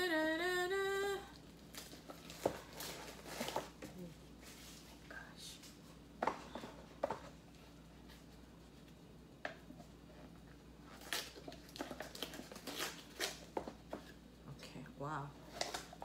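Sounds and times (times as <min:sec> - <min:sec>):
packaging crinkling: 0:10.9 - 0:13.8.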